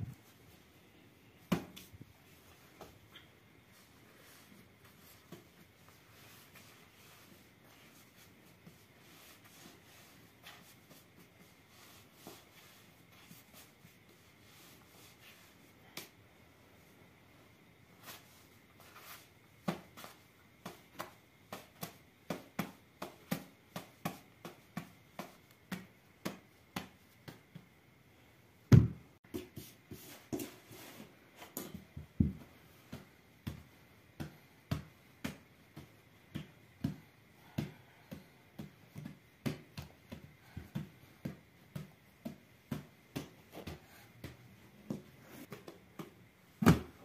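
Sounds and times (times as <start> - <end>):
hands patting dough: 18.0 - 27.8, 31.4 - 47.0.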